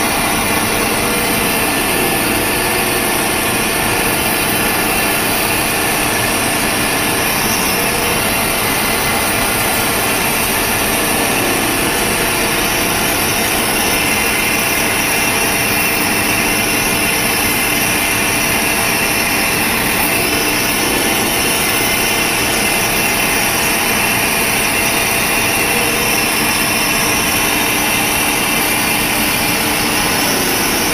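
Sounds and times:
milling machine cutting metal: 0.0 - 30.9.

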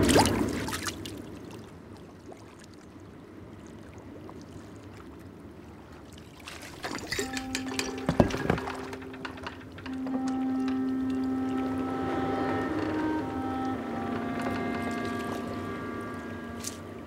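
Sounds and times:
water lapping: 0.0 - 17.0
water splash: 6.3 - 9.5
glass bottle clicks and knocks: 6.9 - 9.6.

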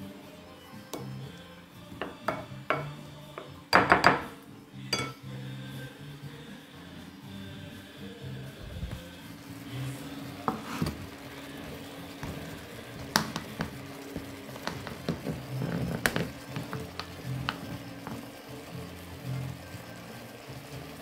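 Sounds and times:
chicken sizzling in a frying pan: 0.0 - 21.0
wooden spatula scraping a pan: 8.8 - 19.3.

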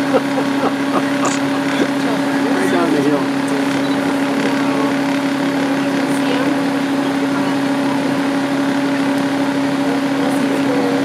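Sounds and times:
bus engine idling: 0.0 - 11.0.

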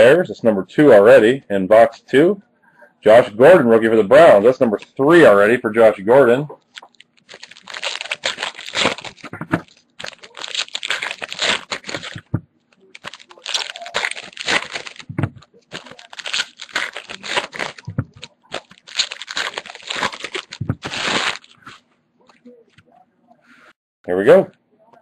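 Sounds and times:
foil wrappers crinkling and tearing: 6.7 - 21.8.

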